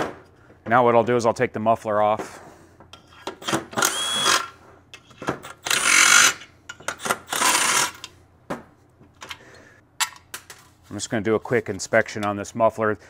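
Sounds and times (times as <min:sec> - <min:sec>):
cordless power screwdriver running: 0:03.8 - 0:04.5, 0:05.6 - 0:06.4, 0:07.3 - 0:08.0.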